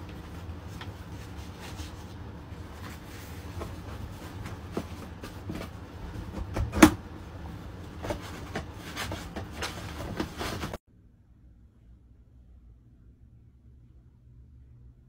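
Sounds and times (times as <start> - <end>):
paper towels rustling: 0.0 - 6.6, 7.2 - 10.8.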